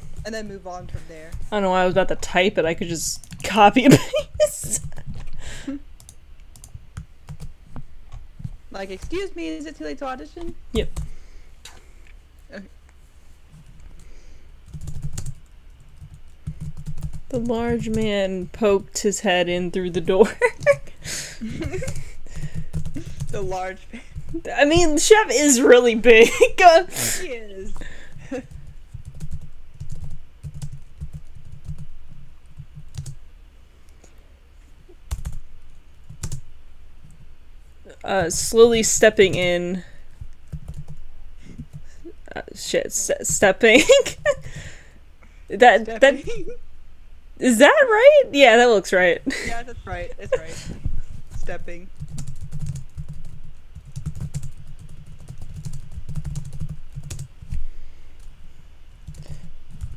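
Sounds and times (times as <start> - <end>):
computer keyboard typing: 6.0 - 7.5, 14.7 - 18.2, 21.6 - 24.4, 28.4 - 33.2, 35.1 - 35.4, 36.0 - 36.4, 40.5 - 41.0, 52.0 - 57.6, 59.0 - 59.9.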